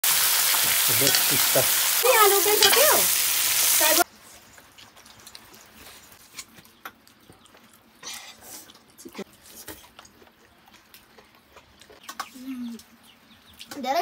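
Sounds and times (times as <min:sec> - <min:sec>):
oil sizzling in a pan: 0:00.0 - 0:05.7.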